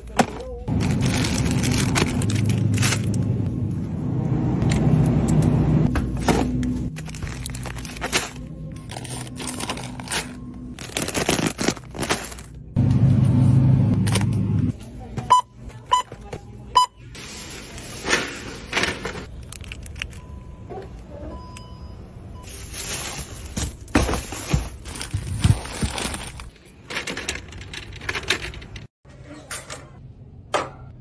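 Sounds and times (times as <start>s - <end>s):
shopping items rustling: 0.0s - 3.4s, 5.9s - 13.4s, 14.0s - 21.5s, 22.4s - 28.9s
checkout scanner beeps: 15.3s - 17.1s, 20.2s - 22.7s.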